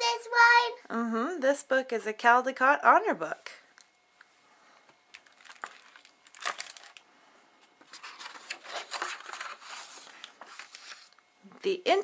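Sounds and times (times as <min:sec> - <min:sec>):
paper rustling and crinkling: 0:05.1 - 0:07.0, 0:07.8 - 0:11.2.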